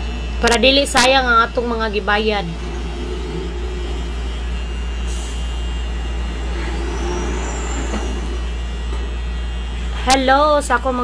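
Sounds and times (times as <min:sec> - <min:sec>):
tattoo pen machine humming: 0:00.0 - 0:10.1
faint wavering tones: 0:01.9 - 0:10.0.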